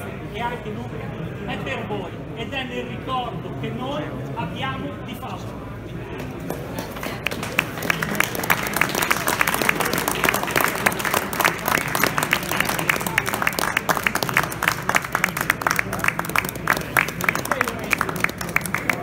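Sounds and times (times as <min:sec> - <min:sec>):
audience applauding: 0:06.9 - 0:19.0.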